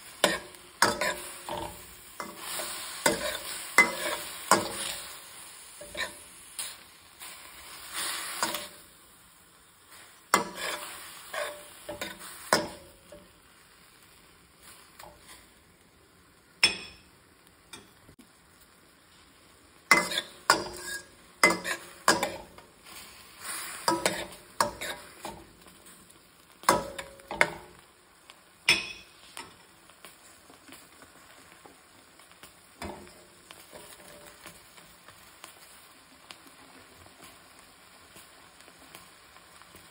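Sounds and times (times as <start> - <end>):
faint sizzle: 0.0 - 39.9
metal spatula scraping pan: 0.2 - 8.8, 9.9 - 12.9, 19.9 - 25.4.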